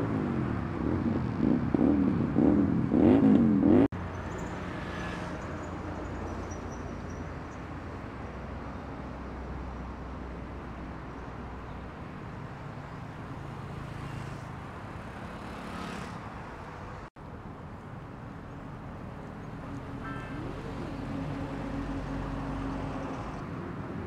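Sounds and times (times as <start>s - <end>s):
motorcycle engine revving: 0.0s - 3.9s
traffic noise: 0.0s - 24.0s.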